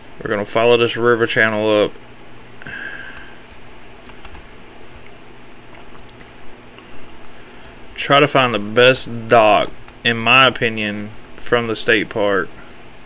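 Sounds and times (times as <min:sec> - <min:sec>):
computer mouse clicks: 0:03.1 - 0:04.4, 0:05.8 - 0:06.5.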